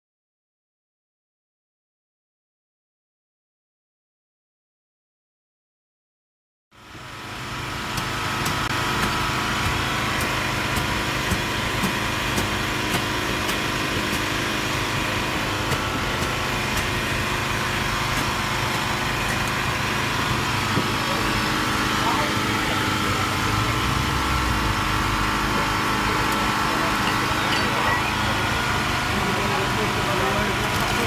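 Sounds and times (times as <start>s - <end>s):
small engine running: 6.8s - 31.0s.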